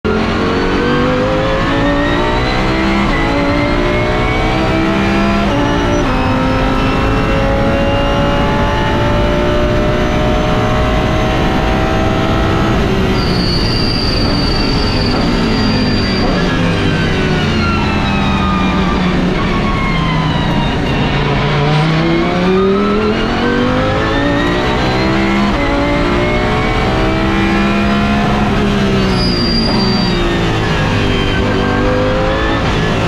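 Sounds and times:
race car engine at full throttle: 0.0 - 33.0.

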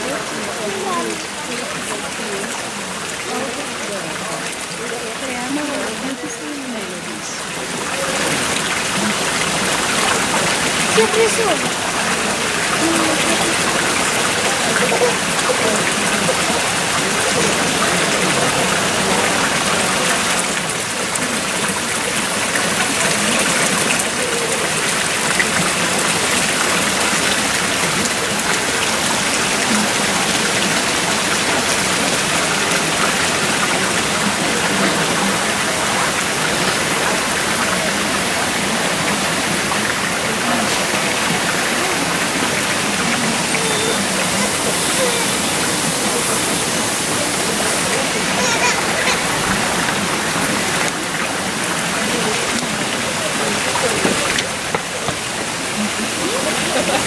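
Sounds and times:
fountain water splashing: 0.0 - 57.0.

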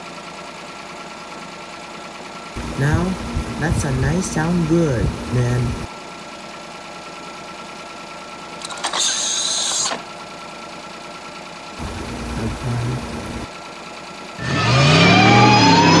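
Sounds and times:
low engine sound: 0.0 - 16.0
loud engine rev: 2.6 - 5.9, 11.8 - 13.5, 14.4 - 16.0
short hiss: 8.7 - 10.0.

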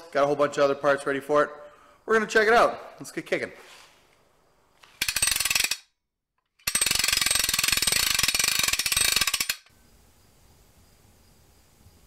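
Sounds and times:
ratchet wrench clicking: 4.8 - 5.9, 6.6 - 9.7.

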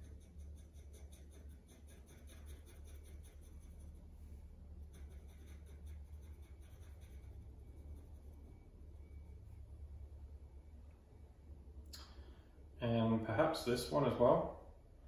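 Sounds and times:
pencil scratching on paper: 0.0 - 9.2.

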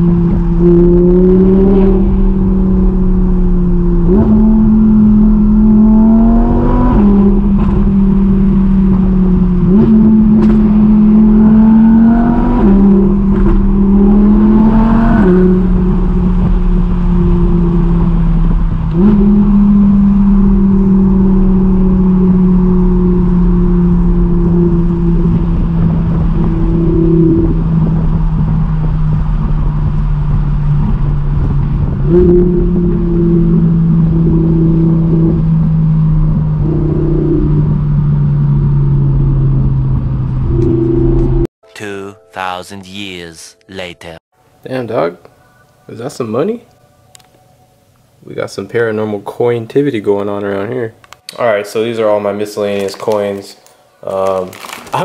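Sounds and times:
car engine revving through gears: 0.0 - 41.5.

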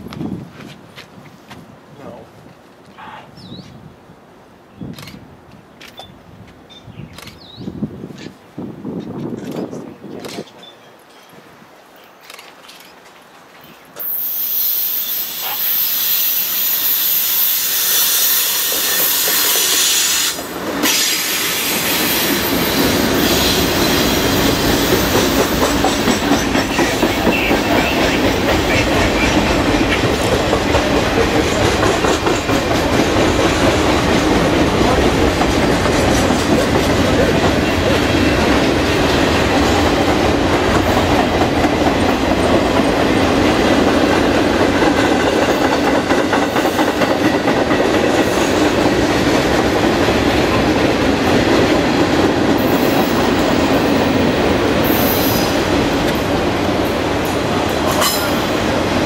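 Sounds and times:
freight train rolling past: 14.0 - 59.0
wheels clacking over rail joints: 18.7 - 59.0.

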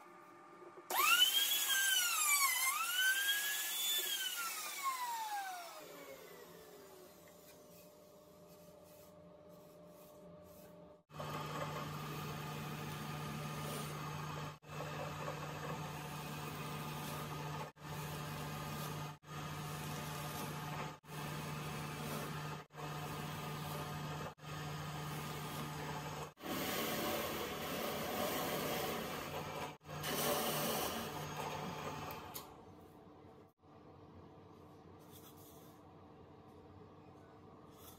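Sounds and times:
drill press boring into wood: 0.9 - 5.9
power tool whine spinning down: 0.9 - 7.1.

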